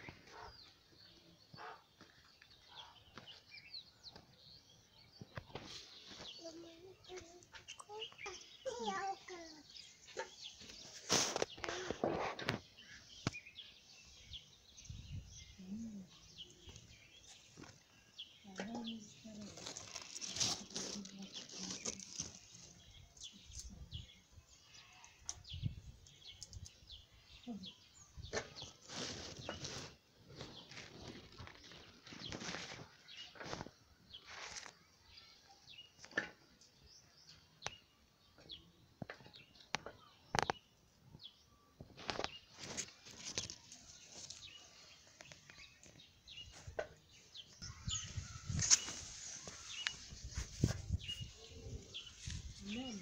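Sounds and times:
small birds chirping: 0.0s - 53.0s
rustling leaves: 7.9s - 13.3s, 16.0s - 24.2s, 28.3s - 34.8s, 42.0s - 53.0s
bird chirps: 36.9s - 53.0s.

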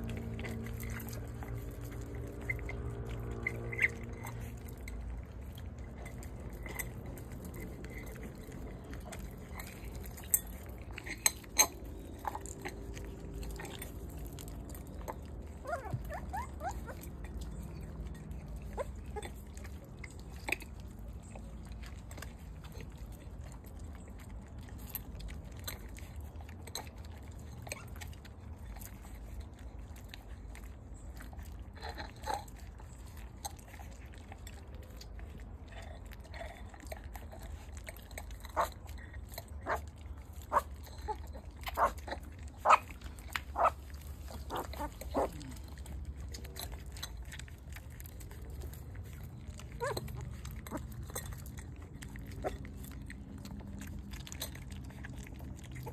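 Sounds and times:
puppies chewing and lapping food: 0.0s - 55.9s
puppies squeaking: 0.3s - 21.6s, 38.5s - 55.9s.

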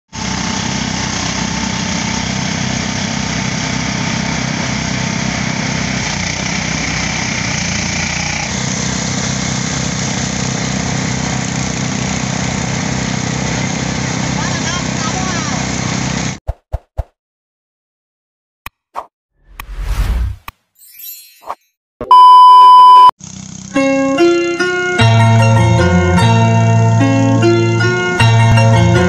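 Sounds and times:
rice thresher engine humming: 0.1s - 16.4s, 23.2s - 24.8s.

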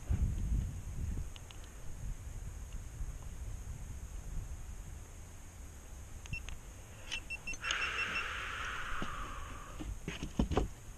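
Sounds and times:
wind rumble on microphone: 0.0s - 6.5s
steady hiss: 0.0s - 10.1s
short high camera beeps: 6.3s - 6.5s, 7.1s - 8.4s.

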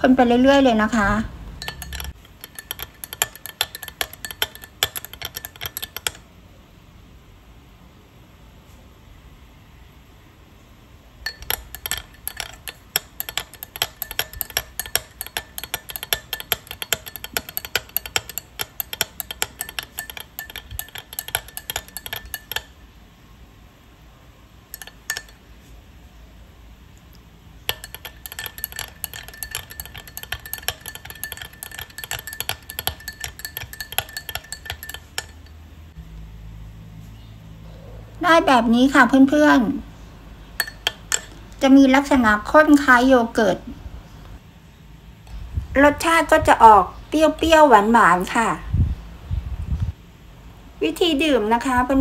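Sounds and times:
spoon clinking in glass mug: 1.6s - 6.2s, 11.3s - 22.8s, 24.7s - 25.4s, 27.7s - 35.6s, 40.6s - 41.4s.

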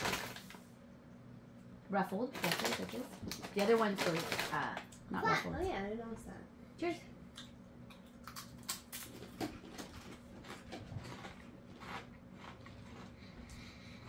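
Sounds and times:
low steady hum: 0.0s - 14.0s
chips being chewed: 7.4s - 14.0s.

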